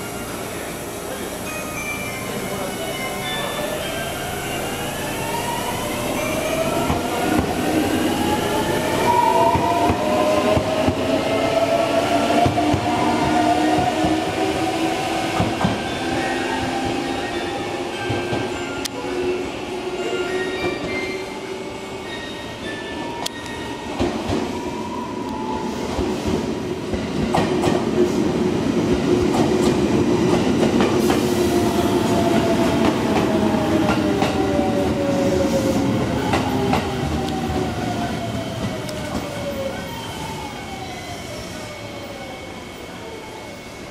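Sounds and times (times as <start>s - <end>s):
train brakes whining: 0.0s - 26.6s
train rumbling: 2.2s - 19.9s, 23.1s - 40.8s.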